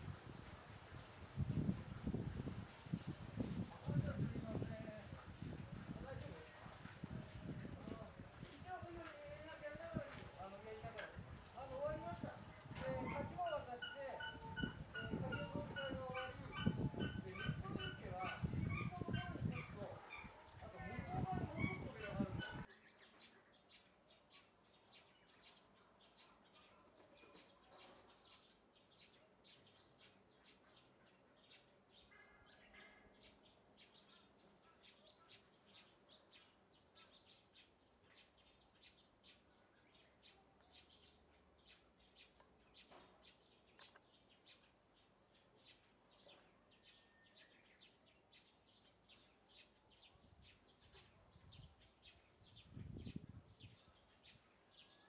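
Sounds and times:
faint outdoor ambience: 0:00.0 - 0:55.0
small birds chirping: 0:00.8 - 0:55.0.

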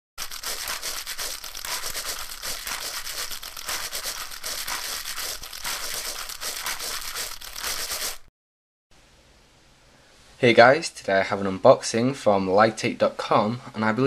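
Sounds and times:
dense crinkling and crackling: 0:00.2 - 0:08.3.

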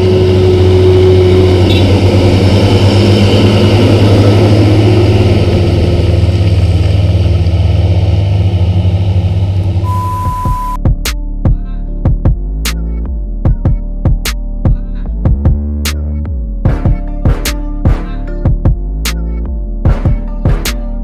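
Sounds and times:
truck diesel engine driving past: 0:00.0 - 0:10.7.

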